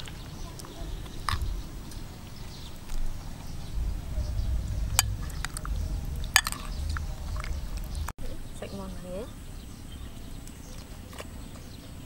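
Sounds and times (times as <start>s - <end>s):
low rumble: 2.8s - 8.2s.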